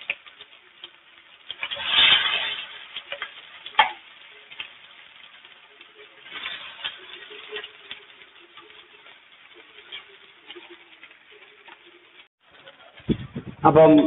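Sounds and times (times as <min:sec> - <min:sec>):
chicken sizzling in oil: 0:00.0 - 0:13.1
metal spatula scraping pan: 0:01.4 - 0:05.3, 0:06.0 - 0:13.0.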